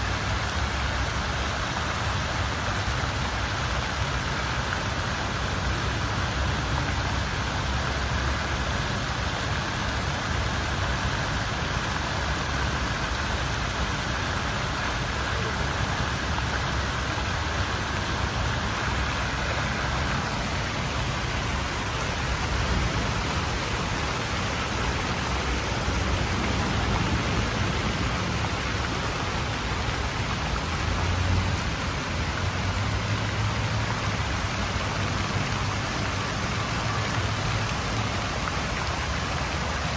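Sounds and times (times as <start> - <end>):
fountain water splashing into pool: 0.0 - 39.9.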